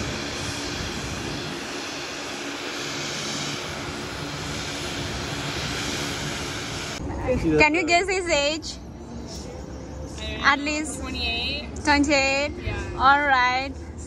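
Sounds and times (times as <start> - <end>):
plane engine and propeller: 0.0 - 9.1.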